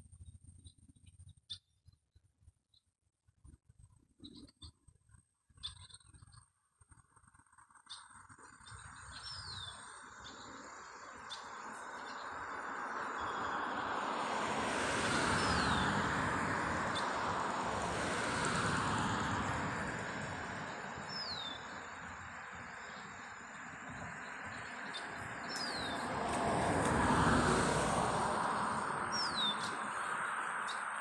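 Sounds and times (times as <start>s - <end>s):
high downward-sliding bird calls: 21.0s - 26.1s, 28.7s - 31.0s.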